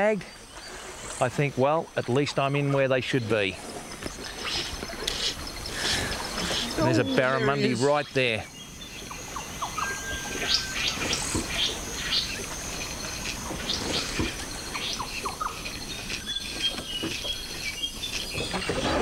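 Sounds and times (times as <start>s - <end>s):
insects buzzing: 0.0s - 19.0s
bird chirps: 3.0s - 18.7s
whistled notes: 9.6s - 11.8s.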